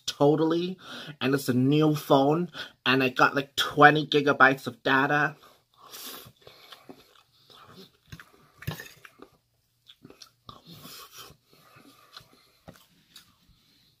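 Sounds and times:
close-up chewing food: 0:05.8 - 0:14.0
mouth smacks and clicks: 0:09.0 - 0:13.3.

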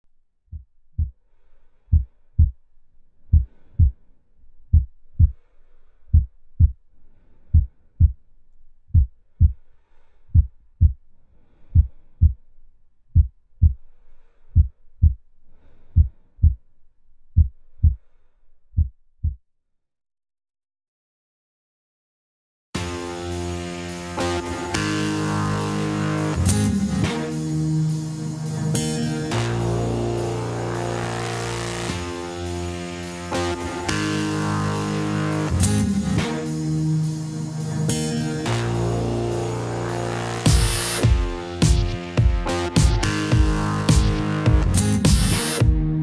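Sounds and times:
heartbeat thumps: 0:00.5 - 0:01.2, 0:01.9 - 0:02.6, 0:03.3 - 0:04.0, 0:04.7 - 0:05.4, 0:06.1 - 0:06.8, 0:07.5 - 0:08.2, 0:08.9 - 0:09.6, 0:10.3 - 0:11.0, 0:11.7 - 0:12.4, 0:13.1 - 0:13.8, 0:14.6 - 0:15.2, 0:16.0 - 0:16.7, 0:17.4 - 0:18.0, 0:18.8 - 0:19.4, 0:40.5 - 0:46.0.

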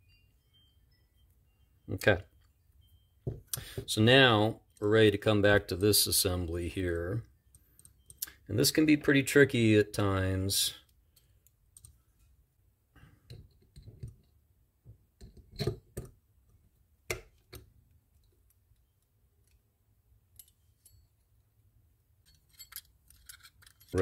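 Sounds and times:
metal reel parts clicking: 0:22.2 - 0:24.0.

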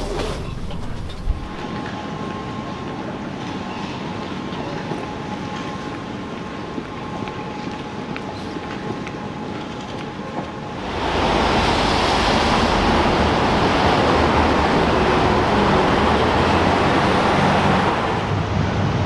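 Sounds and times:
cars driving past: 0:10.8 - 0:19.0.

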